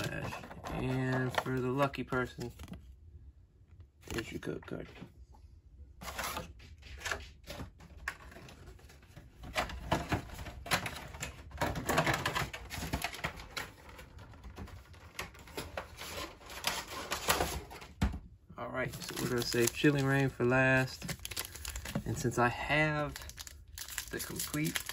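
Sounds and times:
plastic and foil rustling: 8.3 - 17.9, 18.8 - 24.9.

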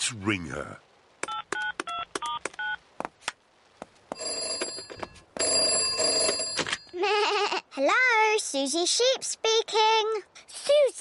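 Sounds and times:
telephone keypad beeps: 1.3 - 2.8
telephone bell ringing: 4.2 - 6.9.

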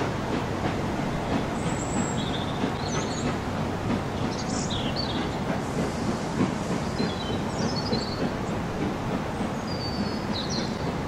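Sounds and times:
train wheels rumbling on track: 0.0 - 11.0
bird chirps: 9.6 - 10.8.

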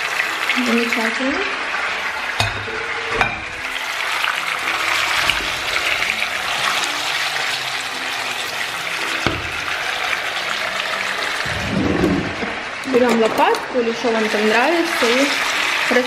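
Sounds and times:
chicken sizzling in frying pan: 0.0 - 11.5, 13.7 - 16.0
knock: 9.2 - 9.6.

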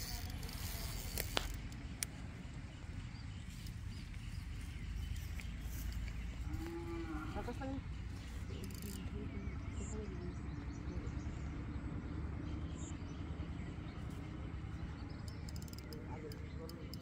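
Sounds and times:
low outdoor rumble: 0.0 - 17.0
faint distant voices: 14.4 - 17.0.

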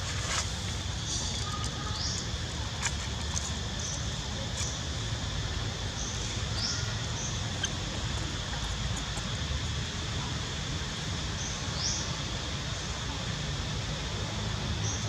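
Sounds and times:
baby monkey squeaking: 6.6 - 9.3.

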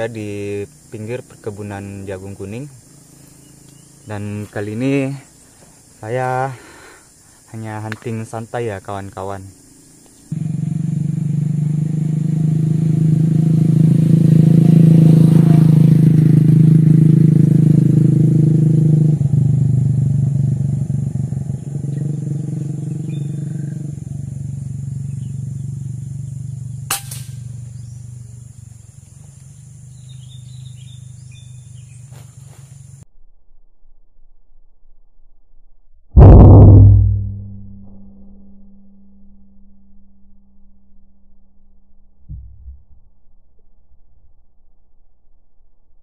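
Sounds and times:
vehicle engine hum: 0.0 - 6.0, 9.5 - 33.0, 42.3 - 43.1
faint bird chirps: 0.1 - 6.3, 21.4 - 33.0
air rifle shot: 26.9 - 27.4.

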